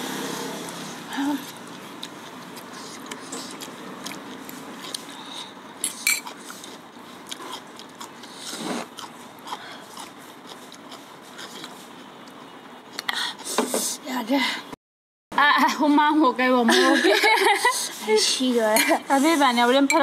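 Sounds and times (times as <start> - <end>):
chewing and biting: 1.4 - 13.1
cutlery clinking on pan and bowl: 5.8 - 6.3.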